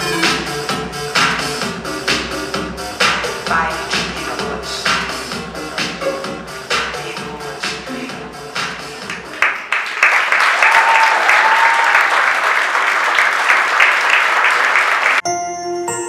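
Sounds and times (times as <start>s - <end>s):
rhythmic dance music: 0.0s - 10.2s
audience applause: 9.0s - 15.2s.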